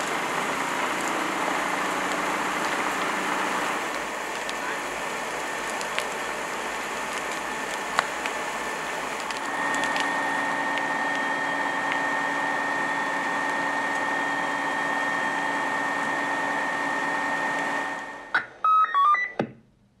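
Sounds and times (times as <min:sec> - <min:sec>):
fire crackling and popping: 0:00.0 - 0:18.2
fire engine whine: 0:00.0 - 0:19.4
electronic beeps tune: 0:18.4 - 0:19.4.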